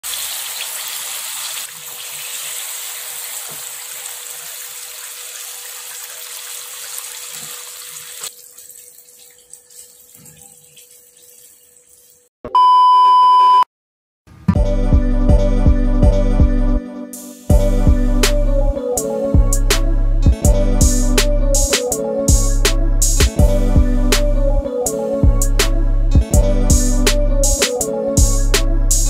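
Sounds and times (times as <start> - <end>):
food deep-frying in oil: 0.0 - 12.3.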